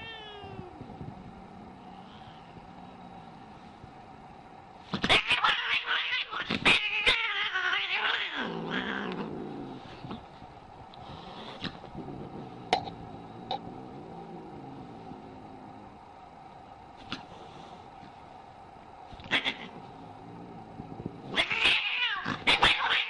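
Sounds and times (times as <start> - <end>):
cat growling: 0.0 - 3.6, 5.0 - 10.3, 11.0 - 16.3, 19.1 - 23.0.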